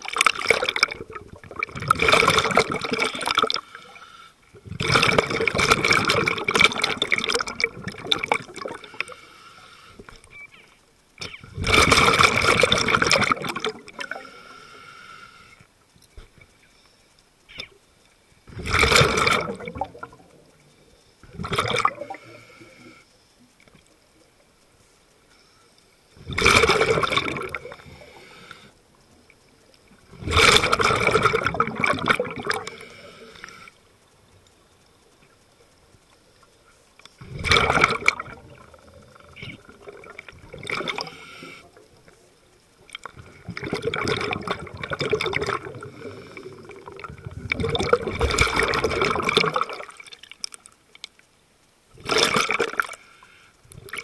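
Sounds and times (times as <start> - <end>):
underwater bubbles rushing out: 0.0 - 3.6, 4.6 - 9.1, 11.2 - 14.3, 18.5 - 20.6, 21.2 - 22.3, 26.2 - 28.0, 30.0 - 32.8, 37.2 - 42.1, 42.8 - 50.4, 51.9 - 53.0.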